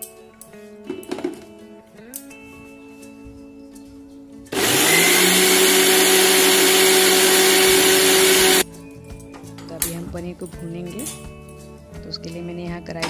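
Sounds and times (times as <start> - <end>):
mixer grinder motor running: 4.5 - 8.6.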